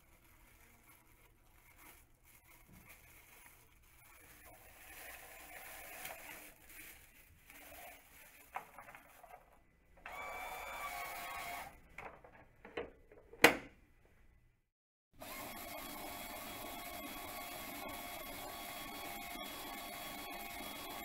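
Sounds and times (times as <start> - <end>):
small electric motor whirring: 10.1 - 11.8, 15.2 - 21.0.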